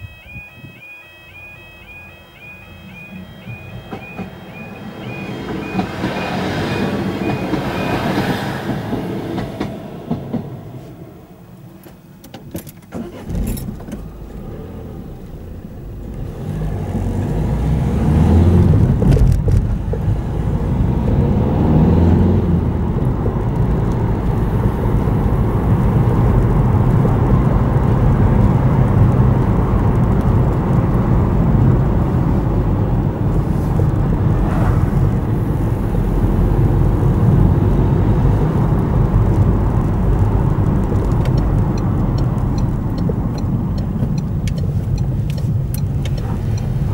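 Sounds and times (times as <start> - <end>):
pulsing crossing alarm: 0.0 - 10.4
train running slowly: 0.0 - 12.3
car engine and tyre noise: 0.0 - 46.9.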